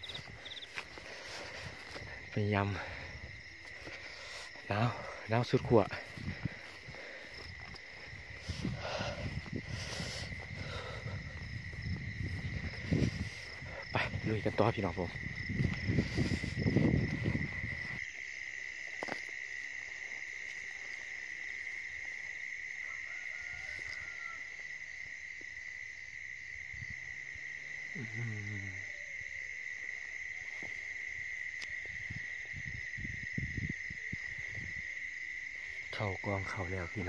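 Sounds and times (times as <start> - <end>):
footsteps through grass: 0.0 - 21.4
night insects droning: 0.0 - 37.0.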